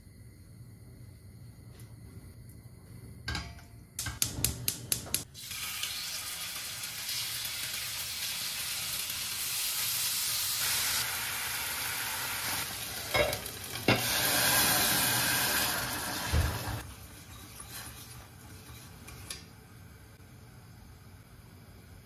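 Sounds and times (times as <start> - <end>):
meat sizzling in a pan: 5.3 - 18.2
pan and utensils knocking: 13.1 - 14.1.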